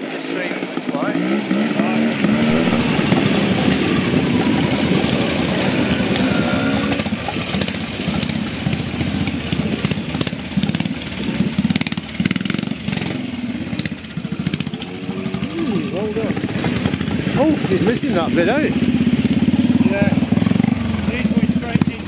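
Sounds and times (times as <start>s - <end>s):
motorcycle engine at low revs: 0.0s - 22.0s.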